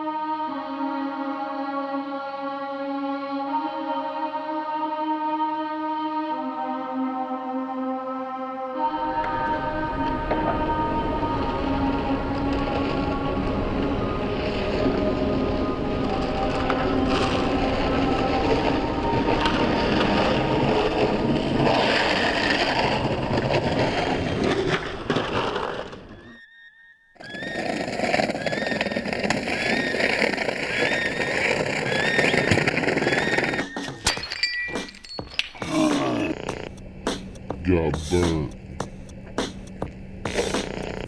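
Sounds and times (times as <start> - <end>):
traffic noise: 8.9 - 22.8
skateboard wheels rolling on asphalt: 8.9 - 26.5, 27.2 - 34.0, 38.7 - 41.0.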